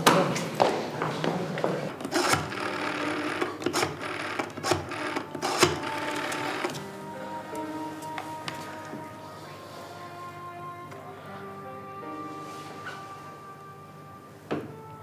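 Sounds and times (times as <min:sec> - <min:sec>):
soft music: 0:01.8 - 0:15.0
telephone dial whirring and clicking: 0:02.0 - 0:06.9.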